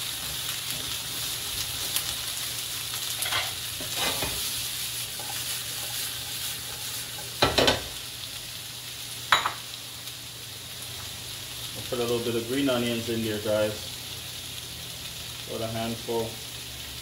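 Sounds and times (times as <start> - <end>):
vegetables sizzling in hot oil: 0.0 - 17.0
spatula scraping wok: 3.1 - 7.9.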